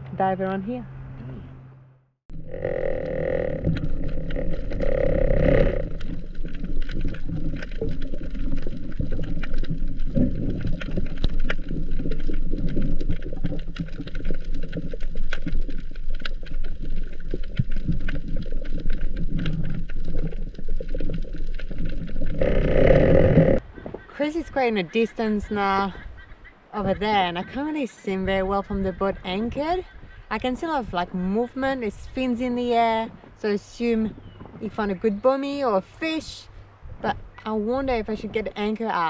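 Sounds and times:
droning sound: 1.1 - 8.2, 22.3 - 23.6
muffled underwater rushing: 2.3 - 24.1.

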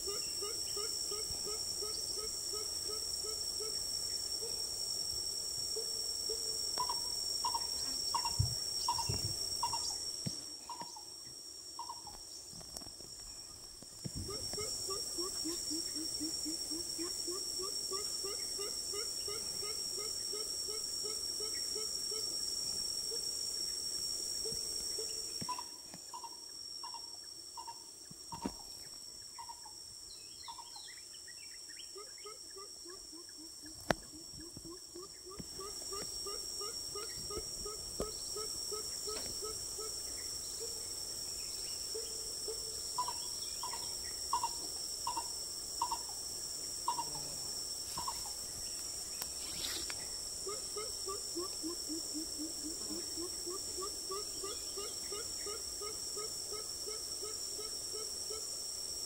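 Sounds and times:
insects droning: 0.0 - 59.0
coucal hooting: 14.3 - 22.3, 46.8 - 48.4.

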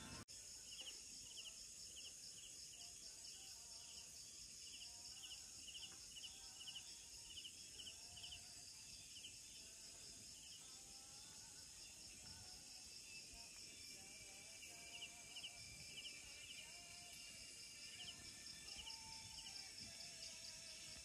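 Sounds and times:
high-pitched insect drone: 0.0 - 21.0
pulsed insect chirp: 0.0 - 21.0.

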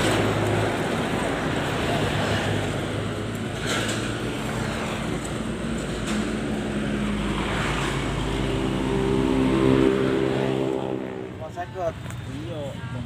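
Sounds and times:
passing traffic: 0.0 - 13.0.

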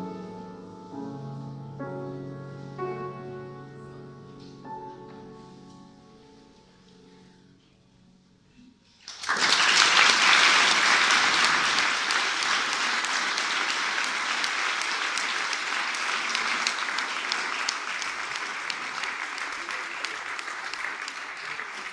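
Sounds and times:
grand piano notes: 0.0 - 9.0
audience applause: 9.0 - 21.9.

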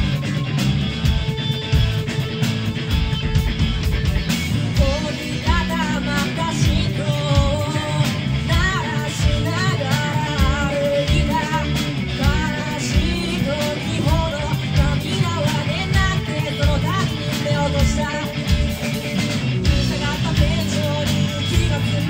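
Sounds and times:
live rock band playing: 0.0 - 22.0
lead vocal singing: 4.8 - 22.0.

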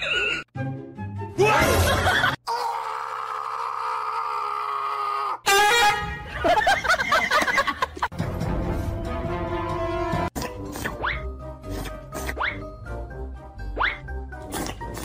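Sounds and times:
horn-like tone: 5.5 - 6.3.

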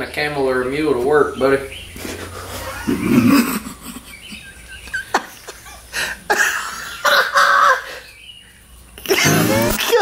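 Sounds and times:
man laughing: 2.2 - 8.1.

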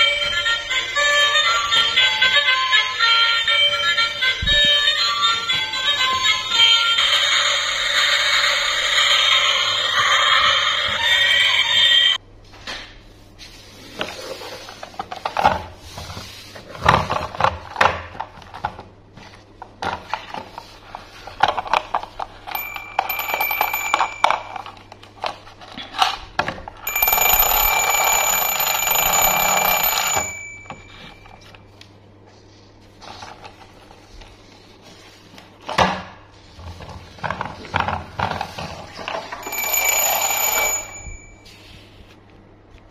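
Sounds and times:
toy train electronic jingle: 0.0 - 10.2.

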